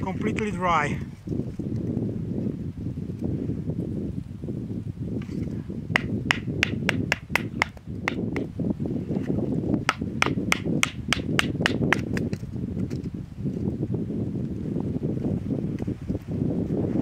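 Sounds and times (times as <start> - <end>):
wind rumble: 0.0 - 17.0
wooden baton knocking on knife: 9.9 - 12.2.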